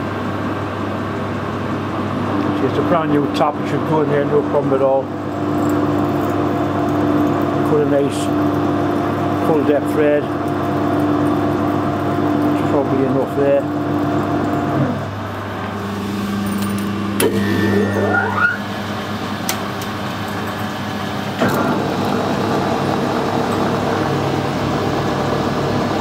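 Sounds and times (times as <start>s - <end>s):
metal lathe running: 2.0s - 26.0s
rising whine: 14.8s - 19.7s.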